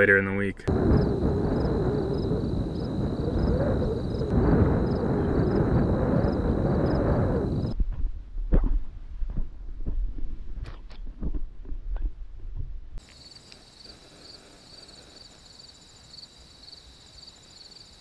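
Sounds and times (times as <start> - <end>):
insects chirping: 0.7 - 7.8, 13.0 - 18.0
low microphone rumble: 0.7 - 13.0.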